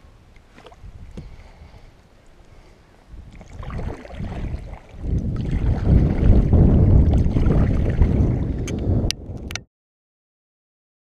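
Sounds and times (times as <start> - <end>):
wind buffeting microphone: 0.7 - 1.9, 3.1 - 9.7.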